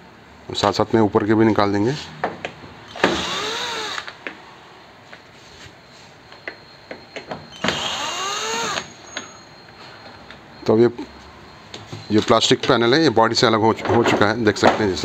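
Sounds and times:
electric screwdriver motor running: 2.9s - 4.1s, 7.6s - 8.9s.

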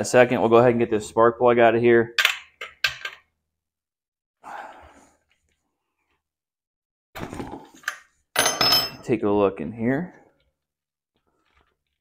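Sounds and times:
breathy exhale: 4.4s - 5.2s.

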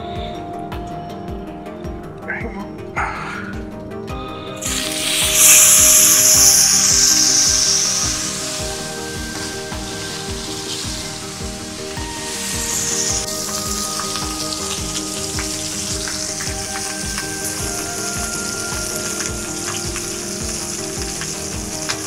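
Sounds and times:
background music with steady beat: 0.0s - 22.0s
steaks sizzling in a pan: 4.6s - 22.0s.

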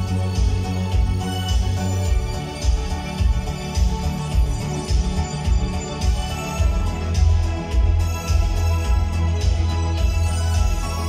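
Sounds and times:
music with heavy bass and steady beat: 0.0s - 11.0s.

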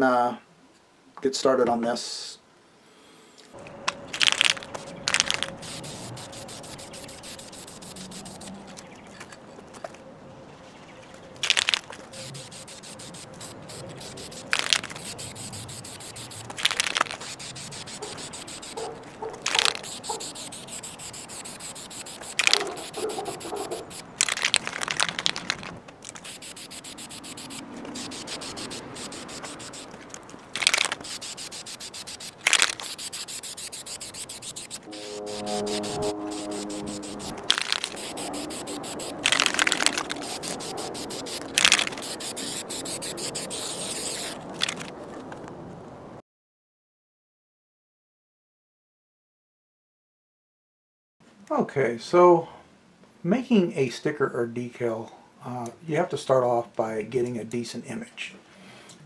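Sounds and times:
aerosol paint spraying: 4.2s - 8.6s, 11.6s - 44.8s.

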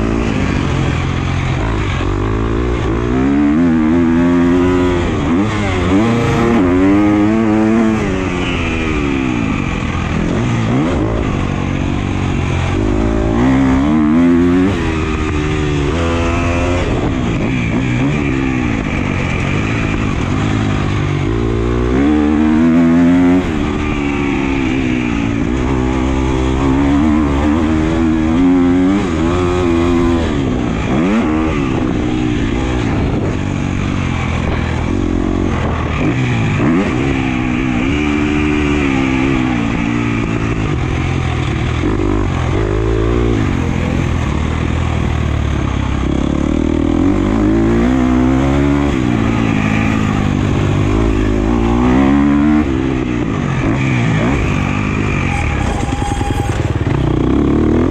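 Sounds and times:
motorcycle engine revving: 0.0s - 57.9s.

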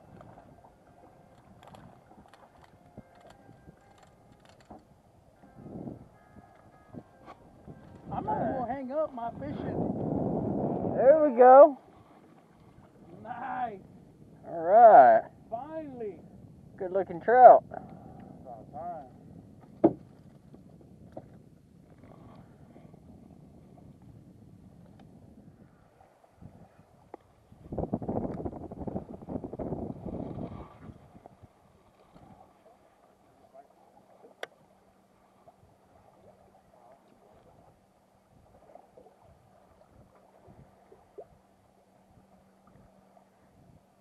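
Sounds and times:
low hum: 0.0s - 15.5s
faint wind rumble on microphone: 0.0s - 44.0s
faint clicks: 1.3s - 5.5s, 34.3s - 34.6s
water slapping against kayak hull: 19.6s - 22.4s.

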